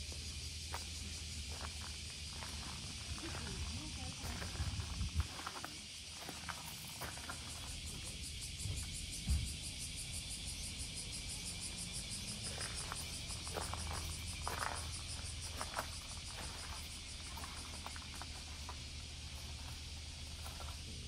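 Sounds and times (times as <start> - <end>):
cicadas buzzing: 0.0 - 21.0
light footsteps: 0.2 - 8.1, 12.3 - 21.0.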